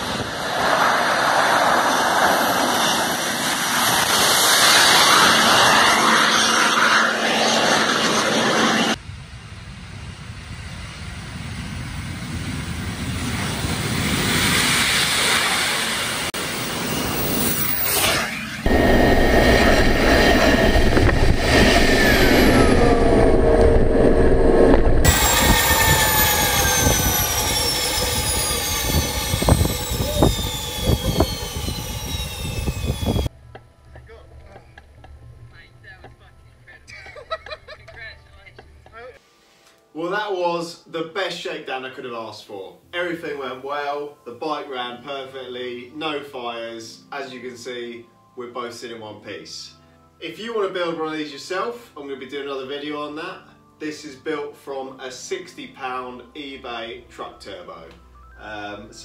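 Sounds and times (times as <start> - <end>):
gas turbine jet rushing: 0.0 - 33.3
turbine whine falling in pitch: 0.0 - 36.1.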